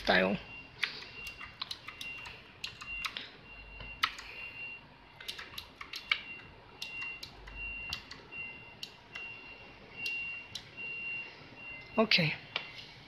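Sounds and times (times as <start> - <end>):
high-pitched beep pulses: 6.0 - 12.9.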